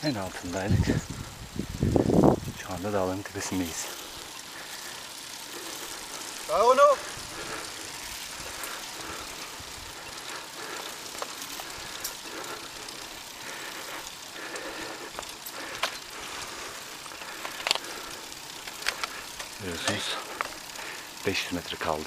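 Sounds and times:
bicycle road noise: 0.0s - 22.0s
wind noise: 0.5s - 2.9s, 7.0s - 10.1s
sharp clicks: 18.6s - 20.6s.

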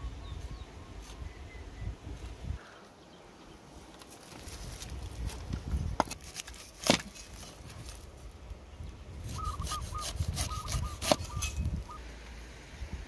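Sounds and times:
knife slicing pineapple rind: 9.3s - 11.6s.

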